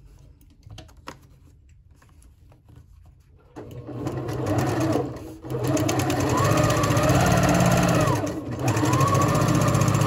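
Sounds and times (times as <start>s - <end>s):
faint paper clicks and rustles: 0.0s - 3.4s
sewing machine stitching: 3.6s - 10.0s.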